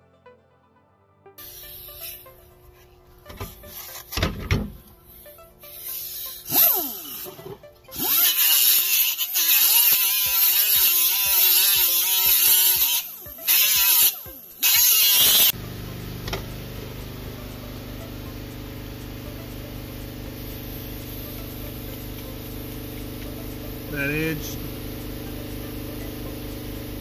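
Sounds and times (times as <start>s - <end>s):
rotary tool grinding steel: 1.4s - 4.2s, 5.2s - 15.6s.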